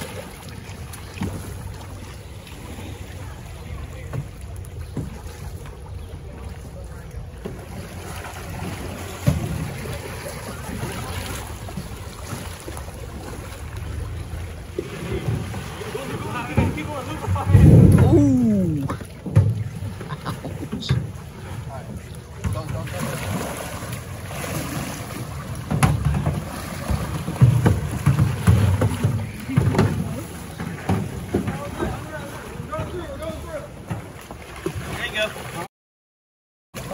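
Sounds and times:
canoe paddles splashing in water: 0.0s - 35.7s
wind buffeting microphone: 13.0s - 19.6s.

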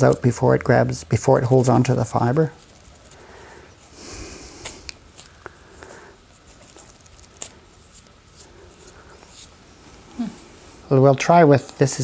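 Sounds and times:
straw crackling and snapping: 0.0s - 9.6s
straw rustling between fingers: 0.0s - 11.6s.

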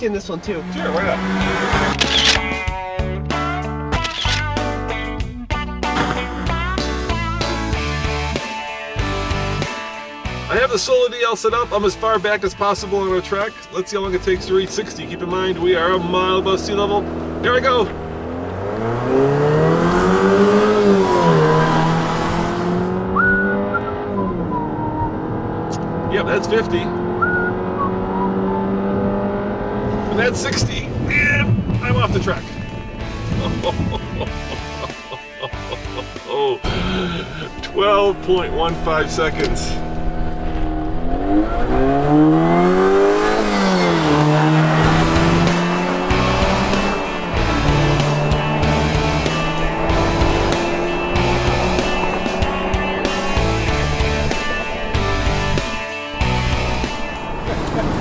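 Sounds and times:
car engine accelerating hard: 0.0s - 2.4s, 14.2s - 58.0s.

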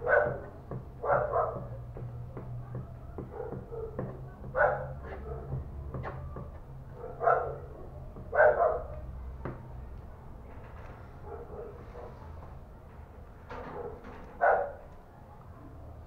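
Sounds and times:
dog barking: 0.0s - 1.8s, 2.7s - 5.6s, 6.9s - 9.0s, 11.2s - 12.4s, 13.7s - 14.9s.

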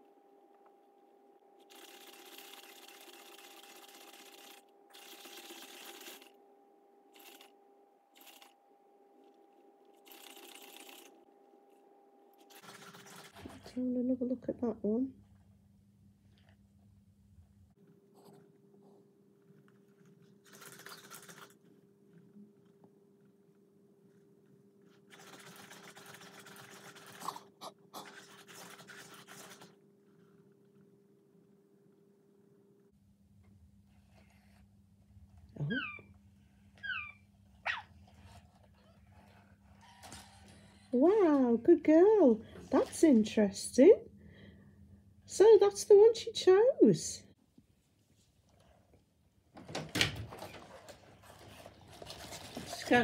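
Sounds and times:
faint steady hum: 0.0s - 20.5s, 29.7s - 49.7s
robot dog motors whirring: 1.6s - 6.4s, 7.1s - 7.5s, 8.1s - 8.6s.

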